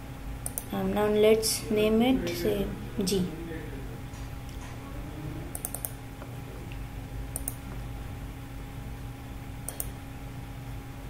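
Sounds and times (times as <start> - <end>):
steady low hum: 0.0 - 11.0
computer mouse clicking: 0.4 - 0.7, 5.5 - 6.3, 7.3 - 7.7, 9.6 - 10.0.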